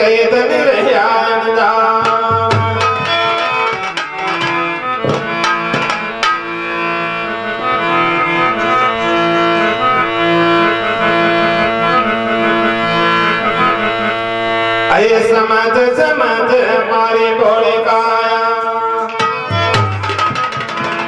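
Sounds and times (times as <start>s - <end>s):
harmonium playing: 0.0s - 21.0s
hand drum strokes: 2.0s - 6.7s, 19.2s - 21.0s.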